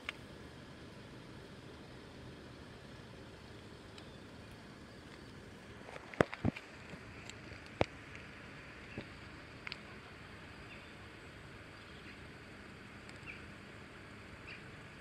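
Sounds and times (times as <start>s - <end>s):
outdoor background hiss: 0.0s - 15.0s
small birds chirping: 3.6s - 15.0s
sharp clicks: 13.0s - 13.4s.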